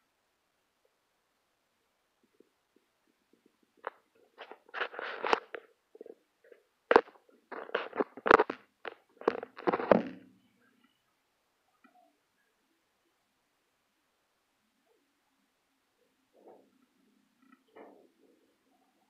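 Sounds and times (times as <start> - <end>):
phone handling knocks and scrapes: 6.9 - 10.2.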